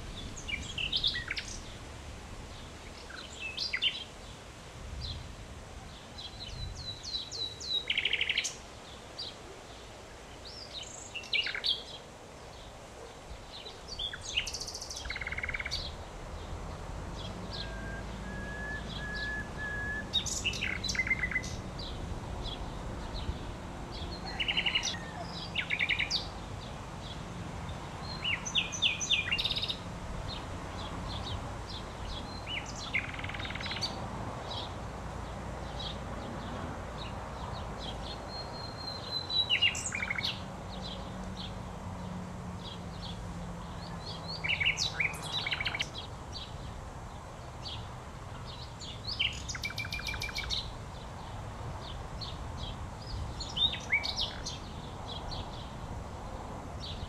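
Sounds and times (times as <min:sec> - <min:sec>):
nightingale singing: 0:00.0 - 0:01.8, 0:02.8 - 0:04.2, 0:05.8 - 0:08.6, 0:10.4 - 0:12.1, 0:13.5 - 0:16.0, 0:17.2 - 0:26.4, 0:28.0 - 0:29.8, 0:30.8 - 0:34.7, 0:37.8 - 0:41.5, 0:43.0 - 0:46.6, 0:48.5 - 0:50.8, 0:51.8 - 0:55.7.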